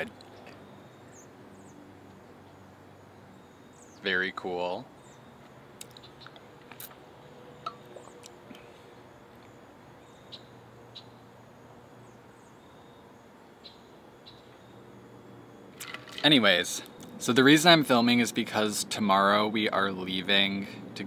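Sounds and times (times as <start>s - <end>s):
faint bird chirps: 0.0s - 15.8s.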